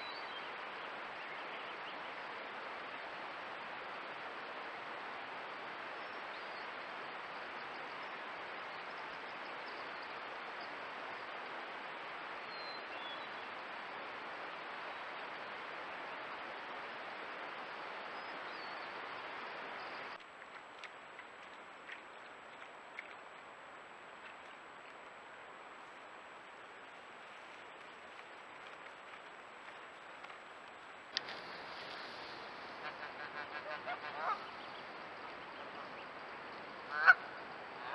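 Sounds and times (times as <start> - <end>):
outdoor hiss: 0.0 - 37.9.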